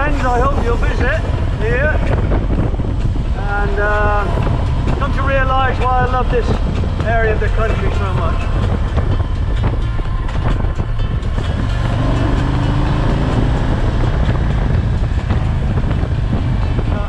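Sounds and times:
motorcycle engine running: 0:00.0 - 0:17.0
road noise: 0:00.0 - 0:17.0
wind noise: 0:00.0 - 0:17.0.

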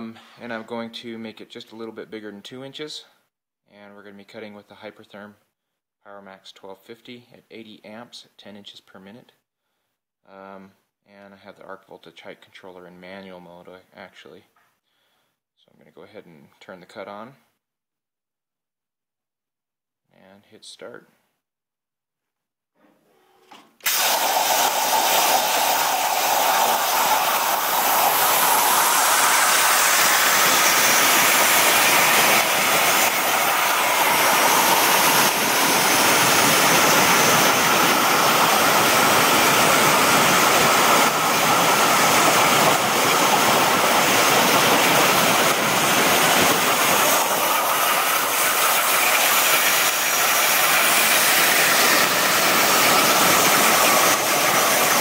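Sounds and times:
plasma cutter hissing: 0:23.8 - 0:55.0.

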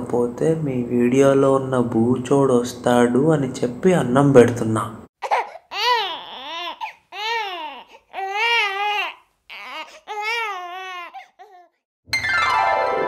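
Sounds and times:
high-pitched wailing sobs: 0:05.2 - 0:11.8.

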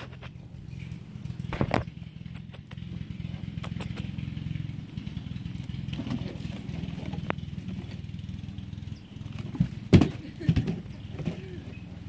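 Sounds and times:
engine idling: 0:00.0 - 0:12.0
light sharp clicks: 0:02.2 - 0:04.2.

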